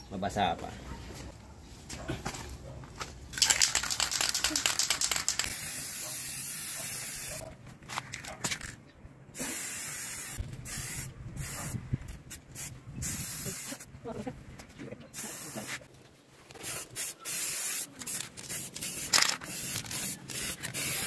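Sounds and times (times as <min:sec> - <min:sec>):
spray can rattling: 0:03.3 - 0:07.4, 0:15.2 - 0:15.8, 0:16.5 - 0:21.0
spray paint hissing: 0:03.4 - 0:07.4, 0:09.4 - 0:13.9, 0:15.1 - 0:15.9, 0:16.5 - 0:21.0.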